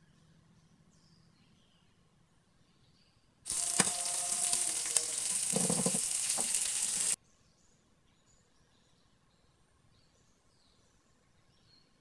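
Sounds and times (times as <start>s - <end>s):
fish sizzling in oil: 3.5s - 7.2s.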